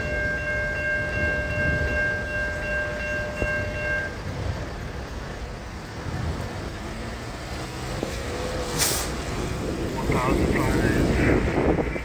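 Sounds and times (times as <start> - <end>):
crossing signal chord of tones: 0.0 - 4.3
traffic on wet pavement: 2.0 - 12.0.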